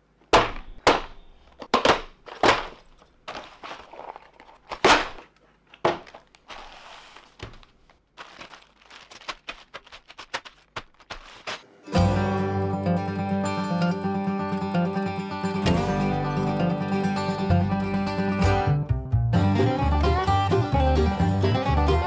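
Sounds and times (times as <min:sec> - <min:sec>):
plastic bags crinkling: 0:02.2 - 0:11.6.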